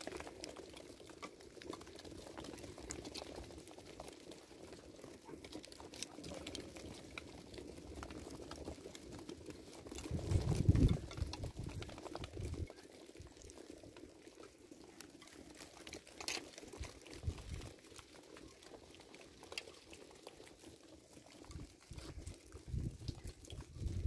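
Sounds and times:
hooves pattering on dry ground: 0:00.0 - 0:24.0
wind rumbling on microphone: 0:09.9 - 0:12.8, 0:17.2 - 0:17.7, 0:21.5 - 0:24.0.

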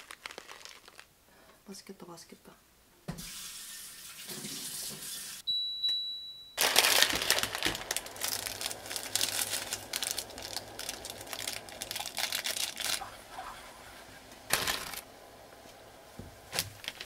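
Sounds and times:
plastic packets crinkling: 0:00.0 - 0:01.1, 0:06.6 - 0:13.6, 0:14.5 - 0:15.1, 0:16.5 - 0:17.0
high beep: 0:05.5 - 0:06.6.

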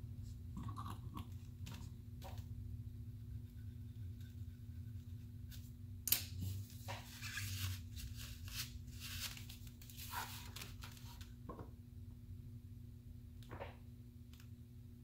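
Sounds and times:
low hum: 0:00.0 - 0:07.8.

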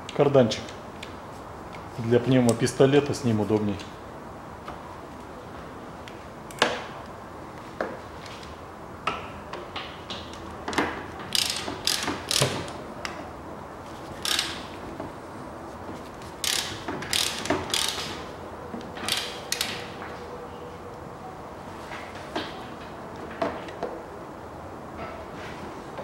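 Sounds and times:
ratchet wrench clicking: 0:11.3 - 0:12.6, 0:14.2 - 0:14.7, 0:16.4 - 0:18.2, 0:19.1 - 0:19.7.

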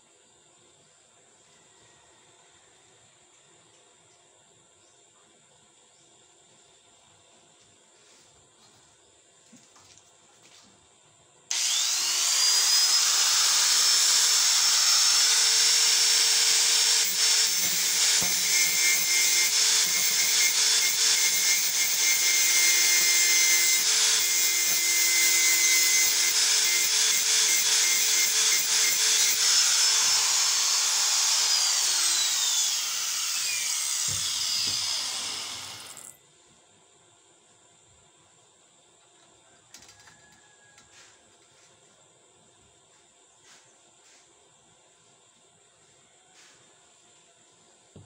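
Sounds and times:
angle grinder whine: 0:11.5 - 0:36.2
grinder disc grinding steel: 0:11.5 - 0:36.2.

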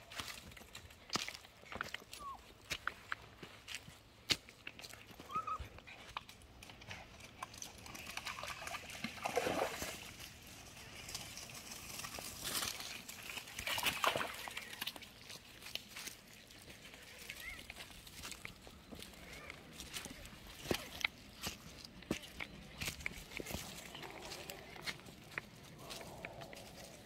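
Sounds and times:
rustling through plants: 0:09.0 - 0:27.0
footsteps on pebbles: 0:10.3 - 0:27.0.

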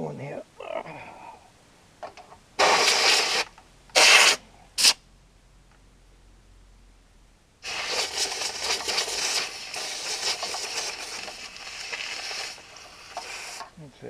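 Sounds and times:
compressed air blasting: 0:02.6 - 0:05.0, 0:07.6 - 0:13.8.

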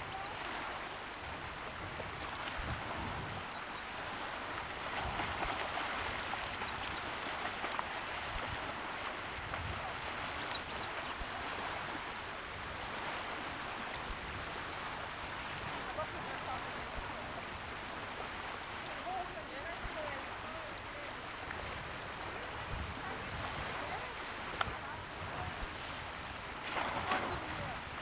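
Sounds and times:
lake water rushing: 0:00.0 - 0:28.0.

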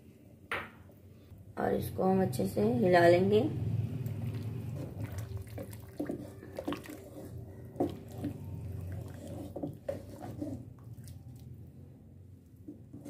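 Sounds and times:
soup sloshing in a pot: 0:04.0 - 0:11.7.

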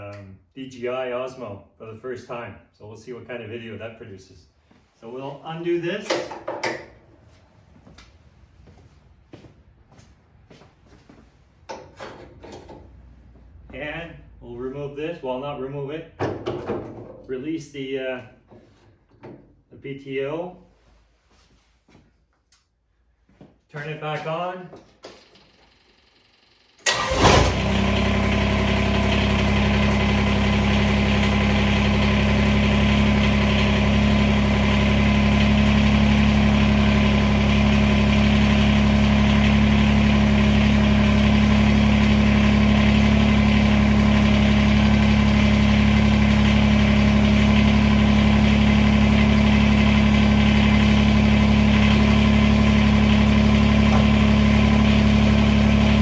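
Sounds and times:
tractor diesel engine idling: 0:26.8 - 0:56.0.

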